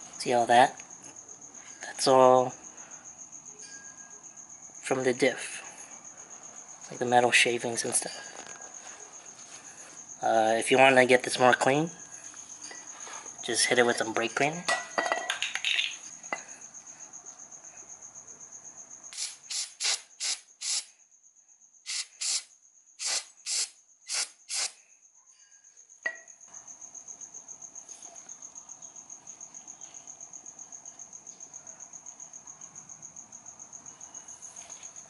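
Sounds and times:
aerosol spray hissing: 19.1s - 20.9s, 21.9s - 24.8s.

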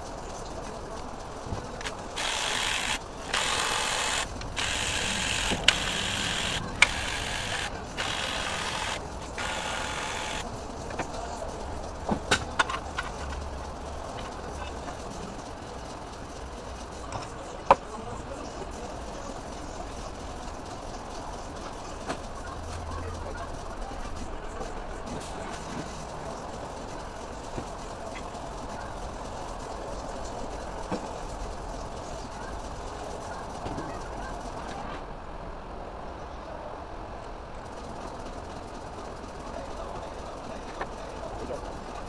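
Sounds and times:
pneumatic air ratchet: 1.8s - 10.5s.

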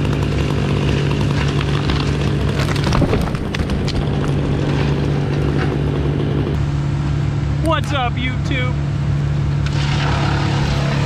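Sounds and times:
tree trunk cracking and crashing: 0.0s - 5.8s.

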